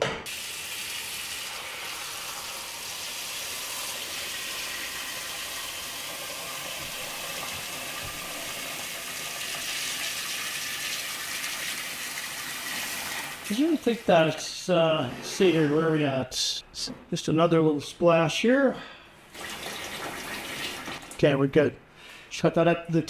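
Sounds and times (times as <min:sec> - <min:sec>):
faucet water splashing into pot: 0:00.3 - 0:14.1, 0:19.3 - 0:21.2.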